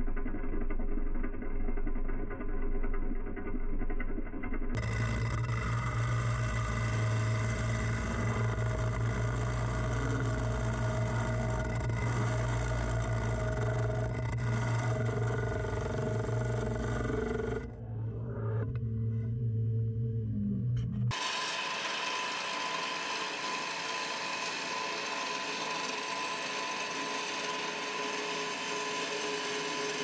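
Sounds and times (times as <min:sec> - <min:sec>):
wood lathe motor hum: 0:04.8 - 0:19.8, 0:21.1 - 0:30.0.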